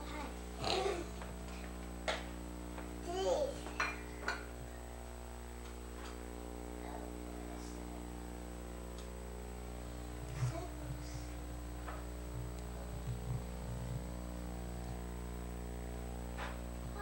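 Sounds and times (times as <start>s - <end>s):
electrical hum: 0.0s - 17.0s
thin high whine: 0.0s - 17.0s
soft low thumps: 10.0s - 17.0s.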